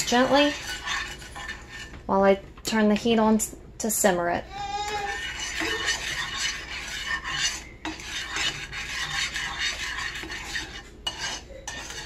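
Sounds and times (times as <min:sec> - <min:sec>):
spatula scraping sugar in pan: 0:00.0 - 0:02.0, 0:04.9 - 0:12.0.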